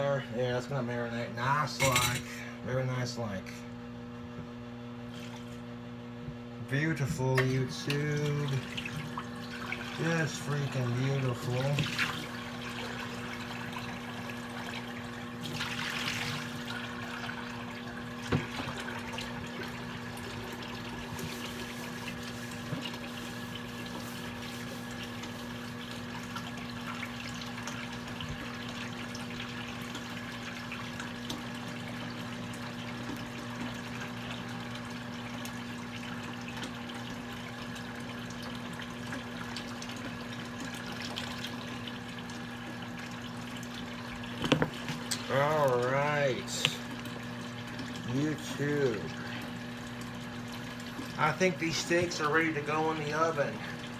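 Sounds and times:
tap running: 0:06.2 - 0:53.9.

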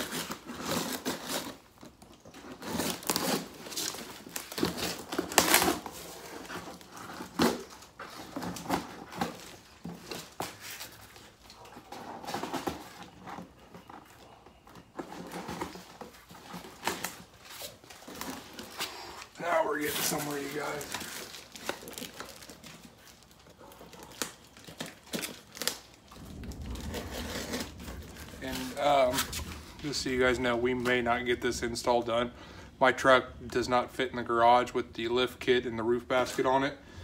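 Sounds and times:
knife slitting packing tape: 0:00.0 - 0:01.7, 0:02.5 - 0:11.2
tape and cardboard crackling: 0:00.0 - 0:32.2.

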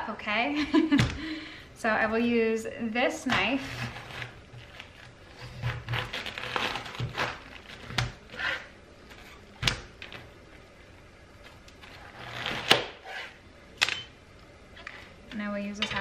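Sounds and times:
knife crunching through cabbage: 0:03.6 - 0:08.7.

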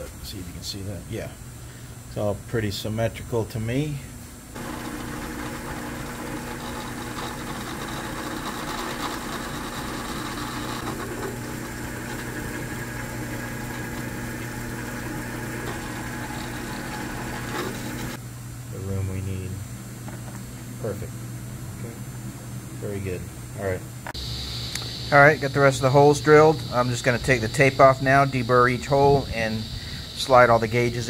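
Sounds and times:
drill press motor running: 0:04.6 - 0:18.2
hole saw cutting panel: 0:04.6 - 0:18.2.

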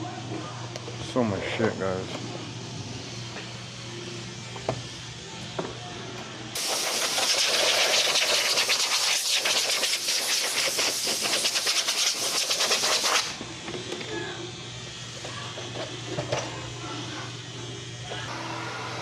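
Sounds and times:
pressurised air hissing: 0:06.6 - 0:13.4.

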